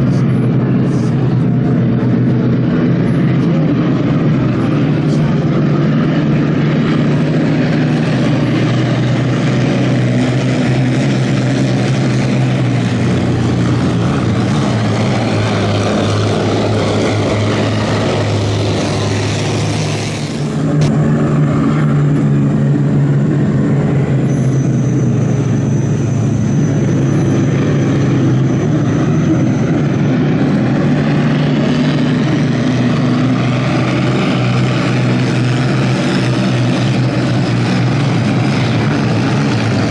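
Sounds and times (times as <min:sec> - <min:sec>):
racing boat engines droning: 0:00.0 - 0:39.9.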